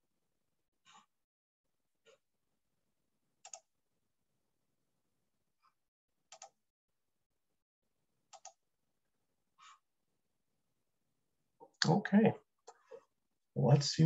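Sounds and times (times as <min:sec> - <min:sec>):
computer mouse clicks: 0:03.4 - 0:03.7, 0:06.3 - 0:06.6, 0:08.3 - 0:08.6.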